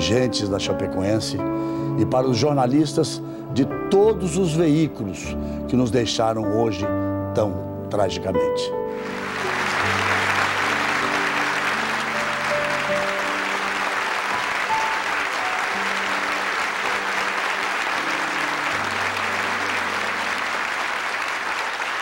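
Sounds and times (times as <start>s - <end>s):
soft music of long notes: 0.0s - 22.0s
crowd applauding: 8.9s - 22.0s.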